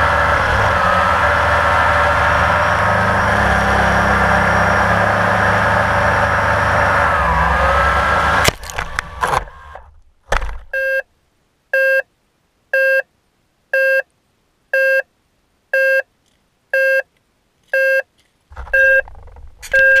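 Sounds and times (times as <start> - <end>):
short electronic beeps: 10.8 - 11.1, 11.8 - 12.1, 12.7 - 13.1, 13.7 - 14.1, 14.7 - 15.1, 15.8 - 16.1, 16.7 - 17.1, 17.7 - 18.1, 18.7 - 19.0, 19.7 - 20.0.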